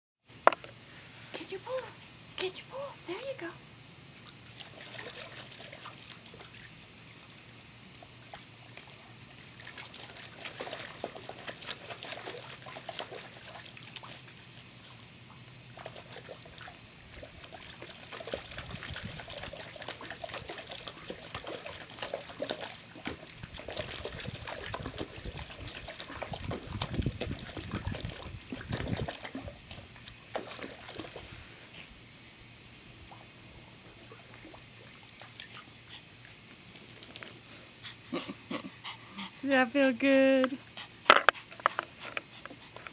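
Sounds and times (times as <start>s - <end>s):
dog splashing in water: 4.2s - 7.4s, 8.2s - 15.0s, 15.7s - 31.4s.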